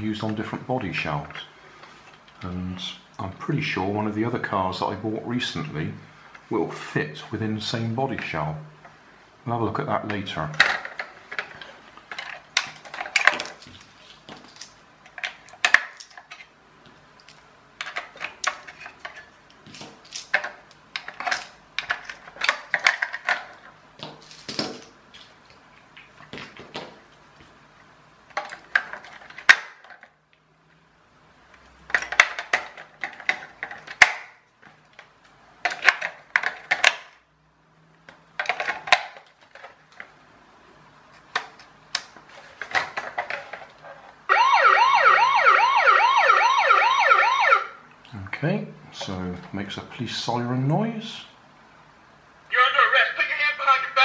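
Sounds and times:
electronic toy siren warbling: 0:44.3 - 0:47.8.

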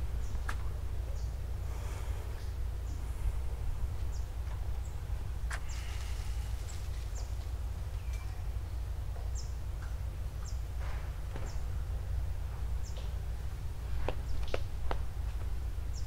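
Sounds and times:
low rumble: 0:00.0 - 0:15.9
small bird high call: 0:05.6 - 0:08.6.

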